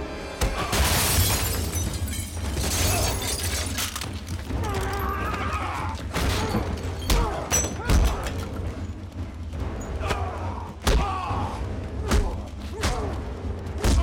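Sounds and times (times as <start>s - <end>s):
wood breaking: 0.5s - 8.8s
glass shattering: 0.7s - 5.1s, 6.2s - 8.5s.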